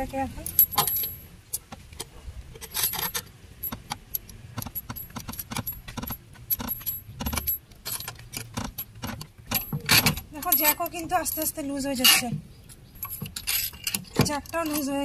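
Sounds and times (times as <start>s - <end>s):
scissor jack cranking metallic clicking: 2.6s - 10.9s, 13.0s - 15.0s.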